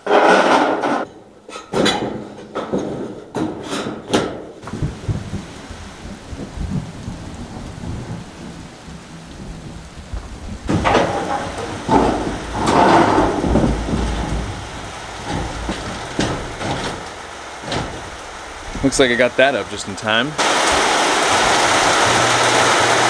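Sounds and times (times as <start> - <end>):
corrugated steel sheets rumbling: 0.0 - 23.0
rain on a steel roof: 0.0 - 23.0
rain on concrete: 4.6 - 23.0.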